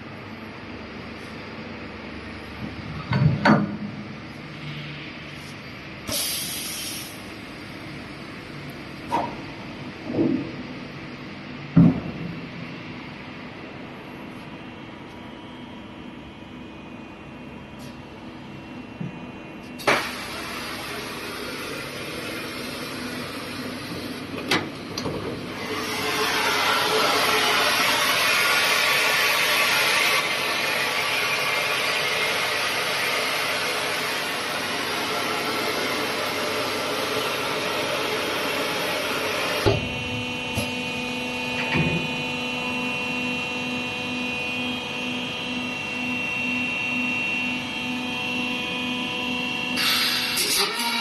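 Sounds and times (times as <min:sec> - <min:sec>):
compressed air hiss: 0:06.1 - 0:07.2
welding machine running: 0:25.4 - 0:51.0.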